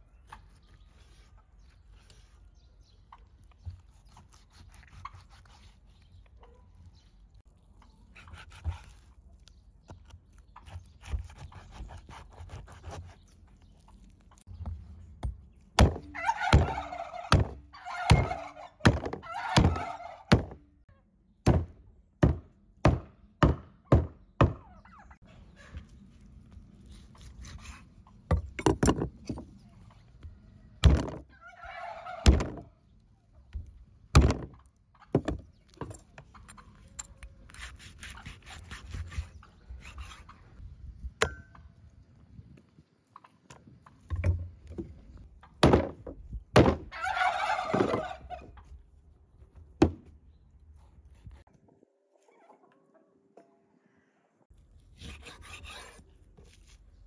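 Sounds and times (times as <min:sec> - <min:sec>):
turkeys gobbling: 0:16.1 - 0:20.3, 0:31.3 - 0:32.4, 0:46.9 - 0:48.7.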